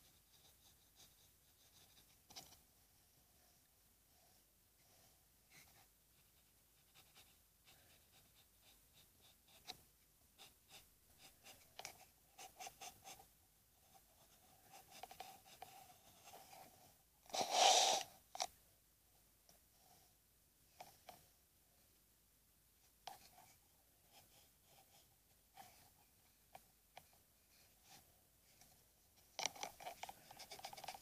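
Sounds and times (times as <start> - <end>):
pencil scratching on paper: 5.0 - 9.8, 10.4 - 13.3, 13.9 - 18.1, 29.3 - 31.0.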